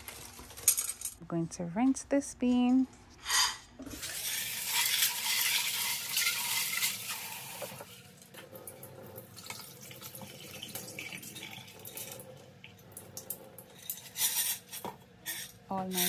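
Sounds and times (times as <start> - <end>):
tap water running into sink: 3.8 - 13.9.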